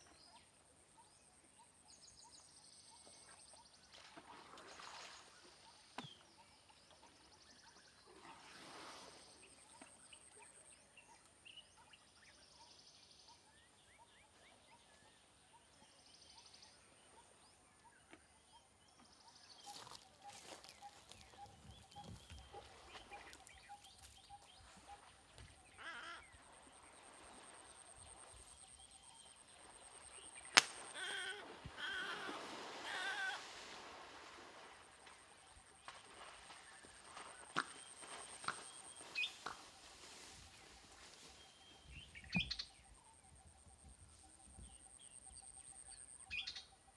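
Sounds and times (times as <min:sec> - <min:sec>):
water splashing: 0:29.6 - 0:40.0
sharp crack: 0:30.5 - 0:31.0.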